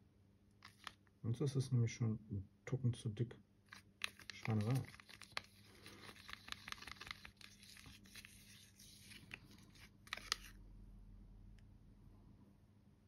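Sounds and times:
stick stirring paint in cup: 3.7 - 10.6.

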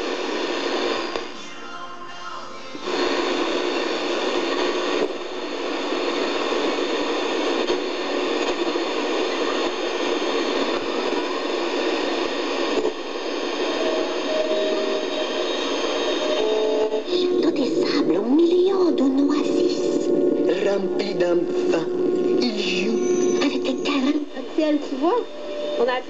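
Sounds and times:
radio static hiss: 0.0 - 26.0
faint whistling tones: 22.7 - 23.8.

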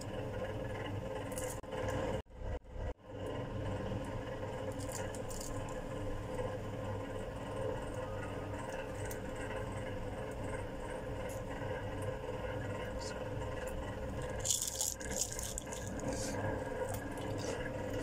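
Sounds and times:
steady low hum: 0.0 - 18.0
crisp fried food crackling: 14.2 - 18.0.

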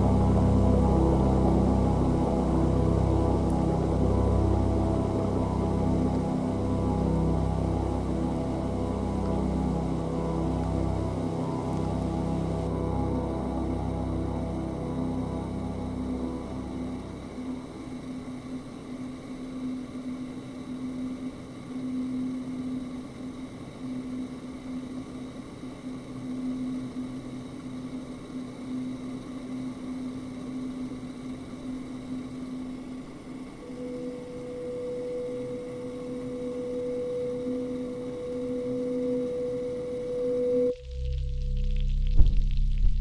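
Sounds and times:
higher sustained tone: 0.0 - 20.0, 33.0 - 43.0
faint hiss-like wash: 0.0 - 40.8
low electronic hum: 0.0 - 43.0.

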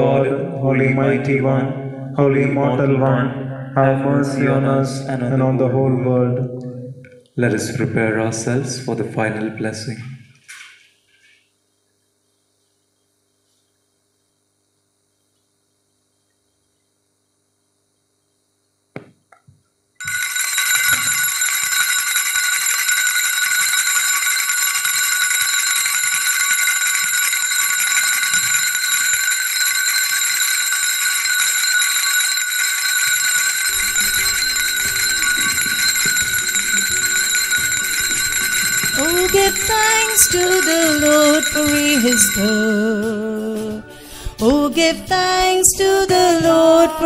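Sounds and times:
bells jangling: 20.0 - 43.3
singing: 39.0 - 47.0.

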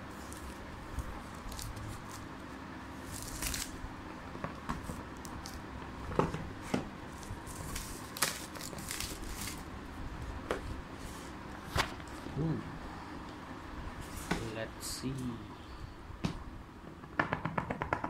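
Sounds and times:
plastic wrap crinkling: 7.5 - 9.6.

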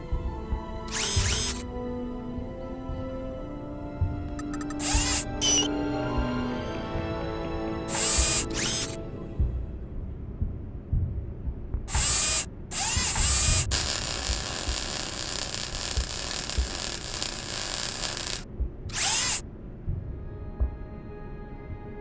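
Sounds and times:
power tool whirring: 0.9 - 1.6, 7.9 - 8.9, 12.0 - 19.4
welding sparks hissing: 13.0 - 19.4.

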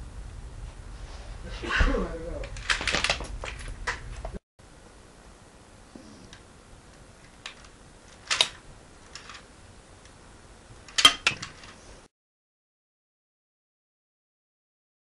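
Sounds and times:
plastic clicks of toy rifle: 7.4 - 9.4.

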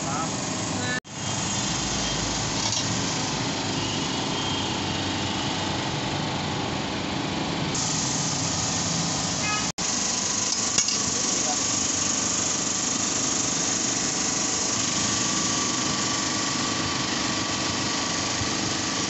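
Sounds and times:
small motor running: 7.7 - 19.0.

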